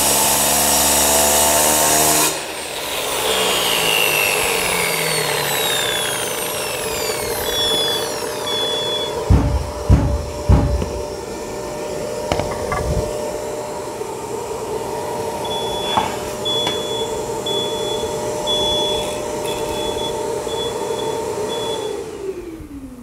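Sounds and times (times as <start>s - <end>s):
angle grinder cutting stone: 0.0s - 14.0s, 15.0s - 21.6s
dust extractor running: 0.0s - 23.0s
short high beeps: 7.5s - 9.2s, 15.5s - 21.9s
thumps: 7.6s - 11.3s, 12.3s - 13.1s.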